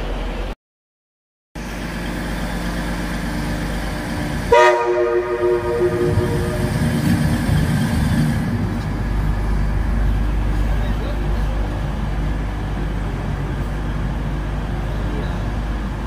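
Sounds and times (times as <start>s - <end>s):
train rumbling into station: 0.0s - 0.6s, 1.6s - 16.0s
train horn blast: 4.4s - 8.0s.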